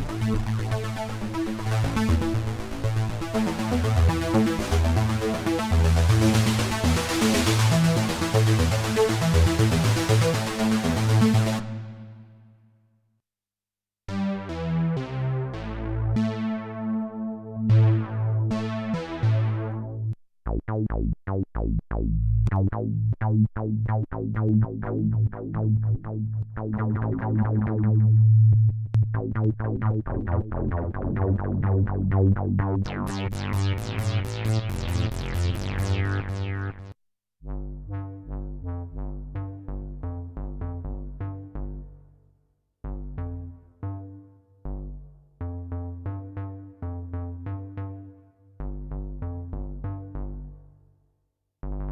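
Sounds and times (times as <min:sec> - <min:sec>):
synthesizer bass notes: 0:00.0 - 0:12.2, 0:14.1 - 0:42.1, 0:42.8 - 0:50.7, 0:51.6 - 0:51.9
synthesizer held tone: 0:32.9 - 0:36.9.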